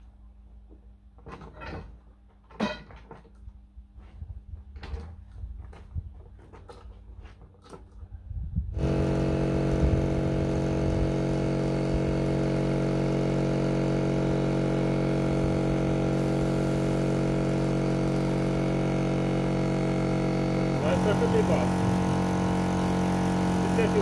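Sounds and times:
electric air compressor running: 0:08.7 - 0:24.0.

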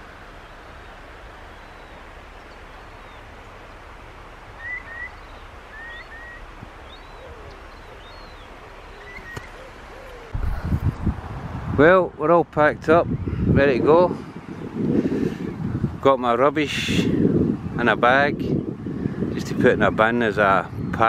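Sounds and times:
seabirds calling: 0:00.0 - 0:10.6
outdoor background hiss: 0:00.0 - 0:20.8.

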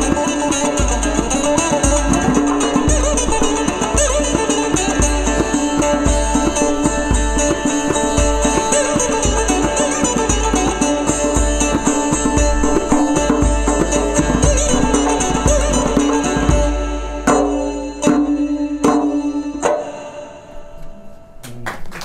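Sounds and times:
heavy accented drum strokes: 0:00.0 - 0:17.6
goblet drum playing: 0:00.0 - 0:20.1
sitar playing: 0:00.0 - 0:21.4.

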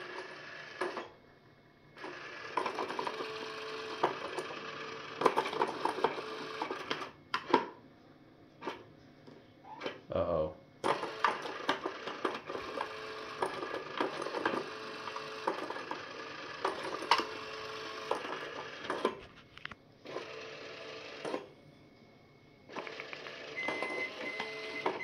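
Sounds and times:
toy motor and gears running: 0:10.8 - 0:19.2, 0:20.0 - 0:21.5, 0:22.7 - 0:25.0.

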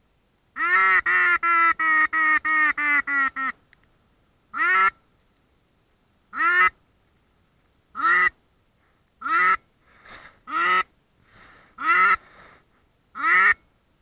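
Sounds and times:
duck quacking: 0:00.6 - 0:03.6, 0:04.5 - 0:05.0, 0:06.3 - 0:06.8, 0:08.0 - 0:08.4, 0:09.2 - 0:09.7, 0:10.5 - 0:10.9, 0:11.8 - 0:12.3, 0:13.1 - 0:13.7.

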